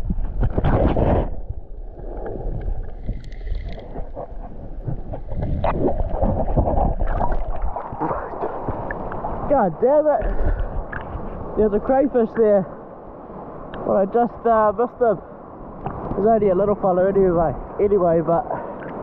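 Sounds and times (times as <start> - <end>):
crackling bubbles: 0.0 - 9.6, 10.2 - 11.4
gurgling water: 0.0 - 12.7, 15.2 - 19.0
water splashing: 0.0 - 12.7
muffled underwater noise: 3.7 - 9.2.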